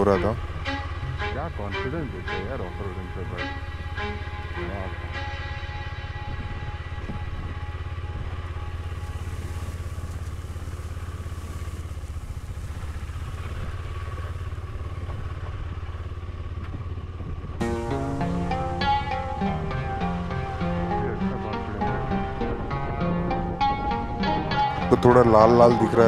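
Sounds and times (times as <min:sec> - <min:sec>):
plucked-string music: 0:00.0 - 0:12.2, 0:17.6 - 0:26.0
motorcycle engine at low revs: 0:00.0 - 0:26.0.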